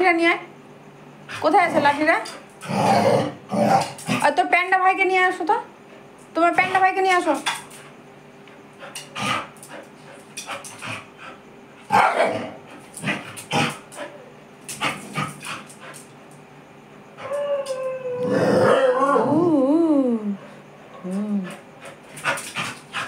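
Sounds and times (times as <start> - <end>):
dog barking: 11.9 - 12.4
dog howling: 17.2 - 19.7.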